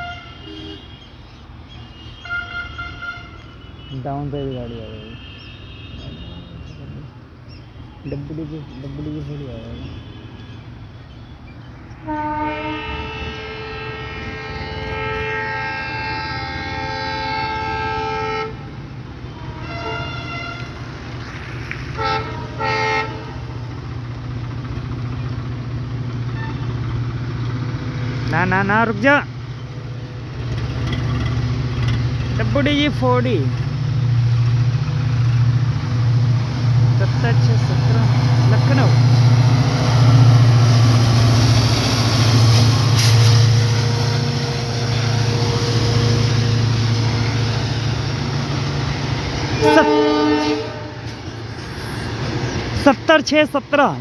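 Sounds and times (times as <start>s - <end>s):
locomotive horn blasts: 0.0s - 1.0s, 2.0s - 6.8s, 12.0s - 20.9s, 22.0s - 23.4s, 26.3s - 26.8s, 42.0s - 51.2s
diesel locomotive drone: 0.0s - 54.0s.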